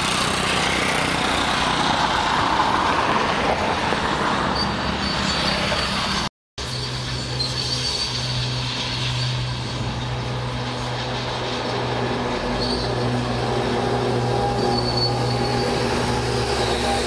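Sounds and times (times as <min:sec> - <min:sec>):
bulldozer diesel engine running: 0:00.0 - 0:02.9, 0:04.6 - 0:17.0
faint high squeaks: 0:14.3 - 0:15.9.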